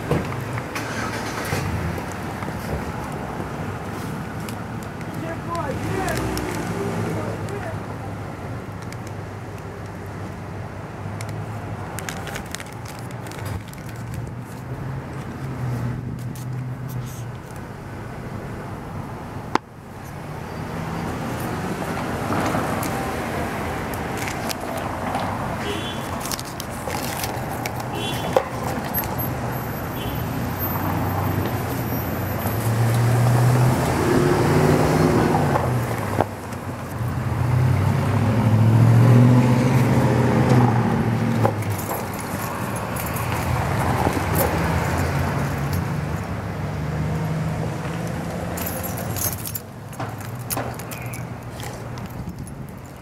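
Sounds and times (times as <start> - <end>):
cars passing: 0.0 - 53.0.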